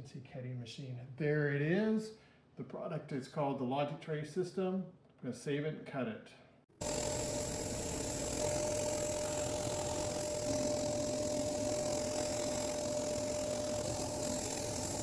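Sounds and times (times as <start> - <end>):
laser cutter humming: 6.8 - 15.0.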